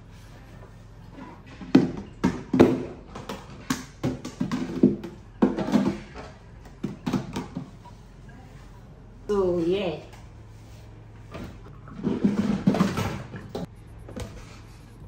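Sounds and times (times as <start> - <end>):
plastic containers clattering in sink: 1.4 - 7.8, 11.7 - 13.7.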